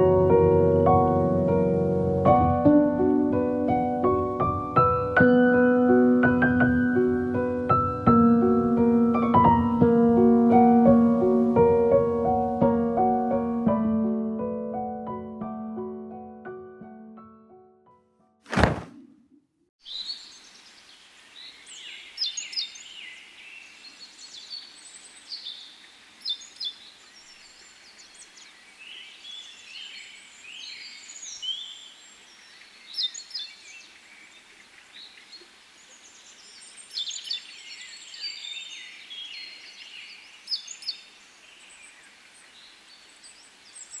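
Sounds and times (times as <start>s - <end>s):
faint steady hiss: 19.8s - 44.0s
songbirds chirping and singing: 19.8s - 44.0s.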